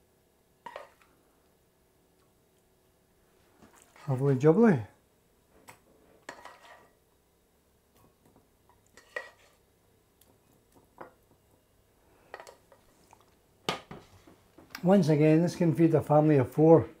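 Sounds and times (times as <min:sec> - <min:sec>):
spoon scraping a saucepan: 0:06.2 - 0:07.0, 0:08.9 - 0:09.6.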